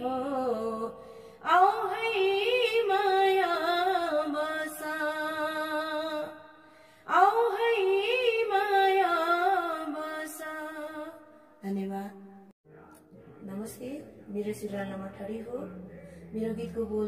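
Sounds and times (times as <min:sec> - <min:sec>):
woman singing unaccompanied: 0:00.0 - 0:06.4, 0:07.1 - 0:12.1, 0:16.4 - 0:17.0.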